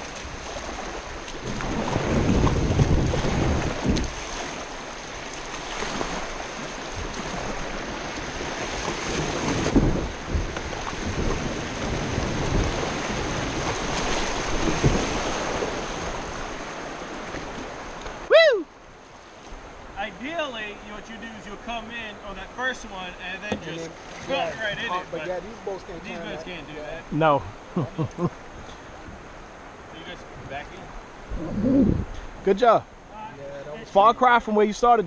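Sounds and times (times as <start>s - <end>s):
wind buffeting microphone: 0.0s - 4.8s, 5.8s - 18.3s, 30.4s - 32.4s
paddle splashes: 0.0s - 20.2s, 21.0s - 26.0s
river rapid rushing water: 0.0s - 35.0s.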